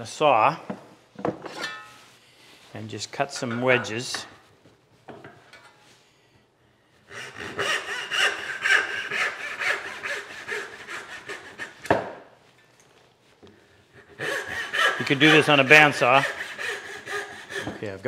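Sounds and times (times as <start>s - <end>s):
back saw strokes on wood: 7.1s - 11.8s, 14.0s - 18.0s.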